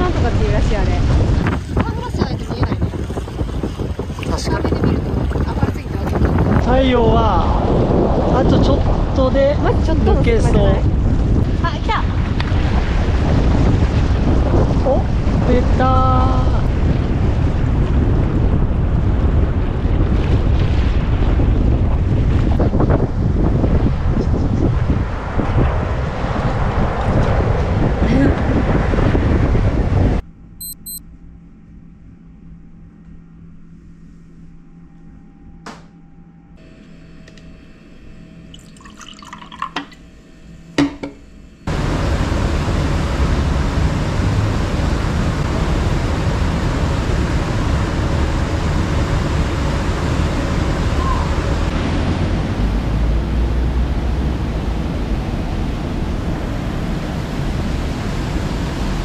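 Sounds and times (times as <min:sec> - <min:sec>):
wind rushing: 0:00.0 - 0:30.2
faint hum: 0:30.2 - 0:51.7
city traffic noise: 0:41.7 - 0:59.0.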